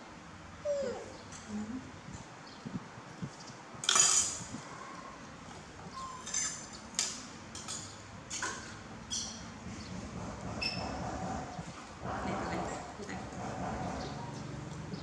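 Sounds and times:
plate and spoon clattering on table: 3.8s - 4.4s.

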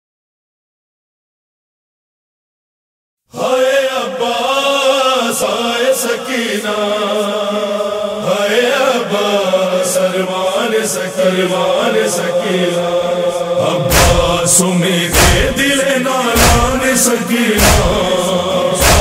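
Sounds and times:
person chanting a lament: 3.3s - 19.0s.

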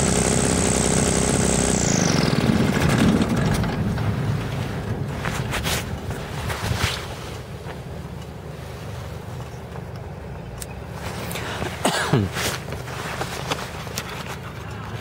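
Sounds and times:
short falling whine: 0.0s - 4.4s
loud clatter: 0.0s - 7.0s
aircraft engines idling: 0.0s - 15.0s
airframe rattling: 2.2s - 7.2s.

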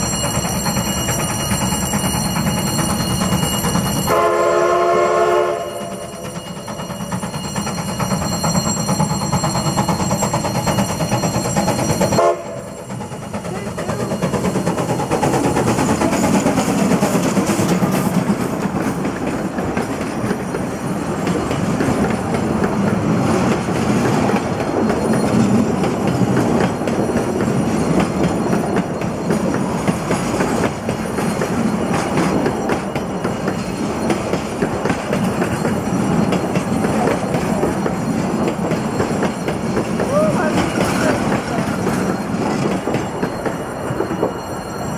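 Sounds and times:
steam locomotive whistle: 4.1s - 6.3s, 12.1s - 12.8s
train wheels clattering over rail joints: 6.0s - 44.9s.

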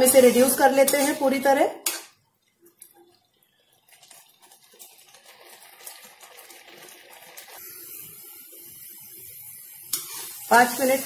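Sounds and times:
spatula scraping pan: 0.0s - 2.1s, 9.9s - 10.9s
milk mixture sizzling and bubbling: 0.0s - 11.0s.

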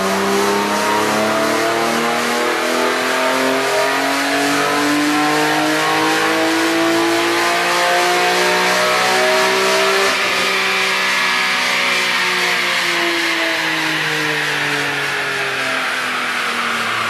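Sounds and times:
car engine revving at full throttle: 0.0s - 17.0s.

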